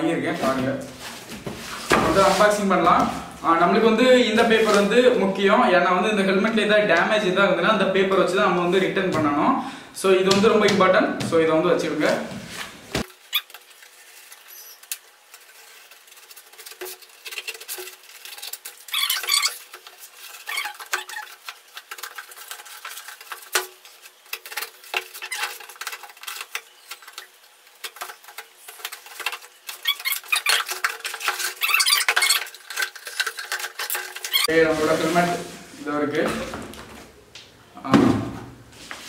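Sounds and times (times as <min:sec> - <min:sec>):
cardboard scraping and rustling: 0:00.3 - 0:03.4, 0:04.3 - 0:05.1, 0:12.0 - 0:37.2
packing tape tearing: 0:13.0 - 0:34.5.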